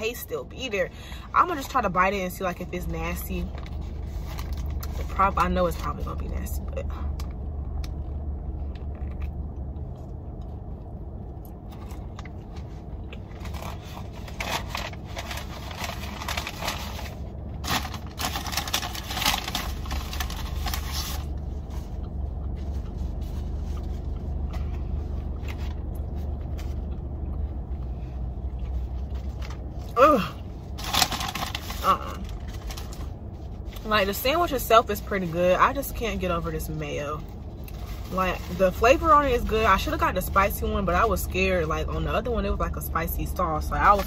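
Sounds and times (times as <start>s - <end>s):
car engine idling hum: 0.0s - 44.0s
biting and chewing food: 7.1s - 21.0s
paper wrapper rustling: 11.8s - 21.9s, 30.8s - 33.8s.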